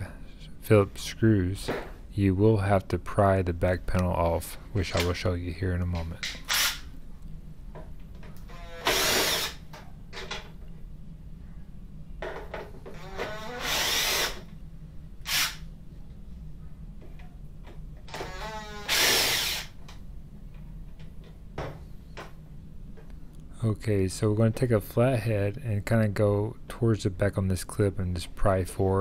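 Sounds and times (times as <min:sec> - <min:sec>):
cordless drill motor whirring: 0:06.5 - 0:06.8, 0:08.5 - 0:09.6, 0:13.0 - 0:14.4, 0:15.3 - 0:15.6, 0:18.1 - 0:19.7.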